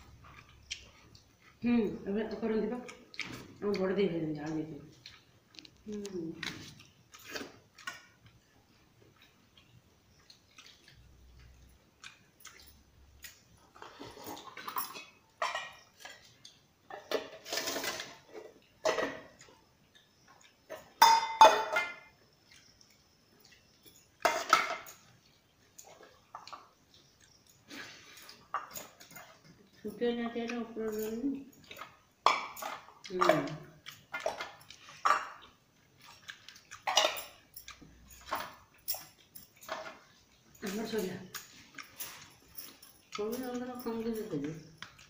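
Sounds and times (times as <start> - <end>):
steel dishes clinking and scraping: 13.8 - 16.2, 24.2 - 25.2.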